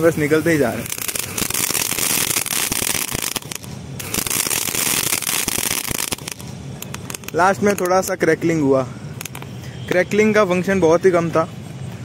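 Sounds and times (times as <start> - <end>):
crackling pops: 0.0 - 8.6, 9.2 - 9.6
firework hissing: 0.0 - 10.0.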